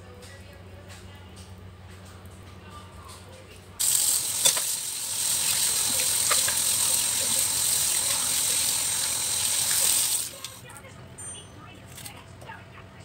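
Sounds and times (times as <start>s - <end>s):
tap running into sink: 3.9s - 10.1s.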